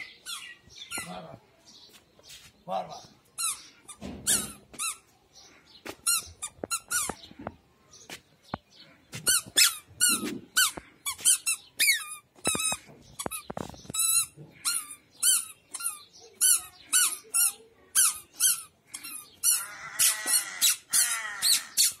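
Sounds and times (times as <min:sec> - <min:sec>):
squeaky shoes squeaking: 0:00.0 - 0:01.3, 0:03.4 - 0:05.0, 0:05.9 - 0:07.4, 0:09.1 - 0:22.0.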